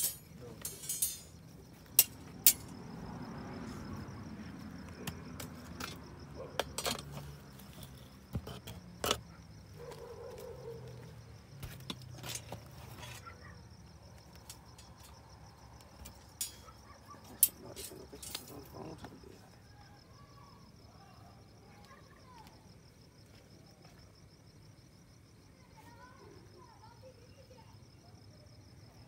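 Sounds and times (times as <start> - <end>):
sharp clicks and clinks: 0.0 - 1.4
insects chirping: 0.0 - 29.0.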